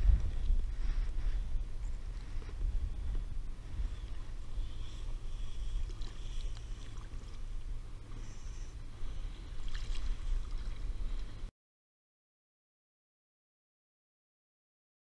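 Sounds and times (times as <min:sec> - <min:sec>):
wind buffeting microphone: 0:00.0 - 0:08.1
water lapping at kayak hull: 0:00.0 - 0:11.5
short splash in water: 0:09.6 - 0:10.8.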